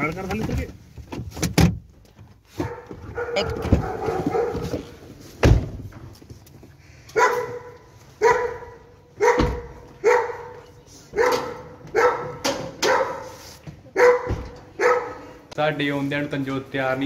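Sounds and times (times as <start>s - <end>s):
dog barking: 2.6s - 4.9s, 7.2s - 15.4s
car door thudding shut: 5.4s - 5.9s, 9.3s - 9.8s.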